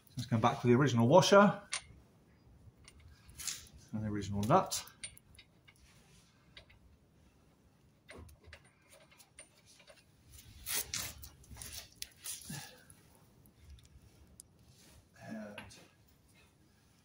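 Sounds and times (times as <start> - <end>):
faint metallic clicks and scrapes: 2.8 - 17.0
metal parts rattling: 4.6 - 5.9.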